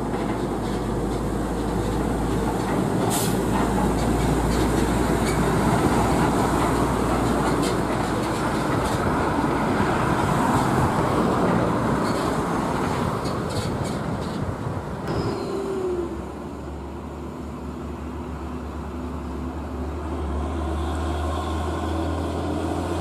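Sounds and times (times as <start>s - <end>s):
truck diesel engine rumble: 0.0s - 23.0s
tyres on road: 0.0s - 23.0s
deep low drone: 15.1s - 17.3s.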